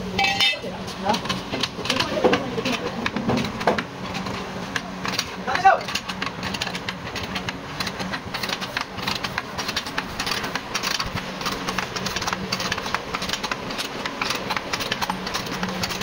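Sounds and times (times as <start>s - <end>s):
steady low hum: 0.0s - 16.0s
chain hoist ratcheting: 5.0s - 16.0s.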